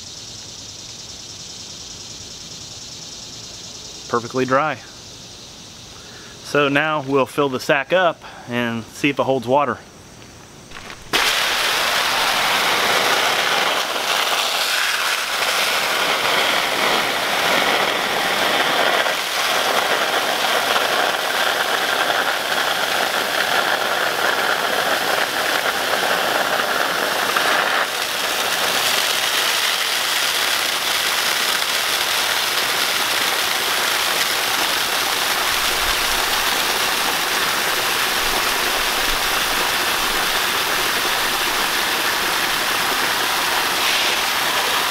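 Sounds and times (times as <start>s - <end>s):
hose water splashing into sack: 10.7s - 44.9s.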